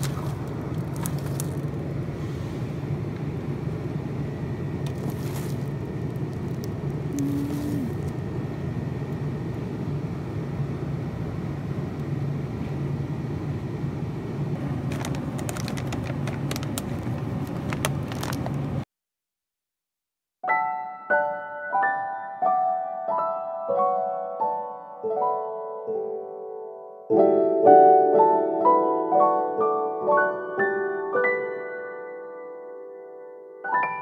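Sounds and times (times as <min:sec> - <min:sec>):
plastic food packages crinkling: 0:00.0 - 0:01.8, 0:04.8 - 0:08.1, 0:14.6 - 0:18.8
store background hum and hiss: 0:00.0 - 0:18.8.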